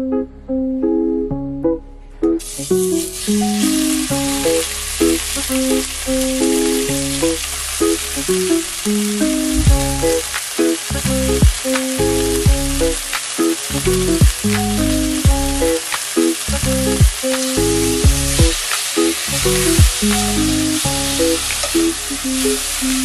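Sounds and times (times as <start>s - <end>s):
beef sizzling in oil: 2.4s - 23.0s
background music with deep beat: 9.2s - 22.7s.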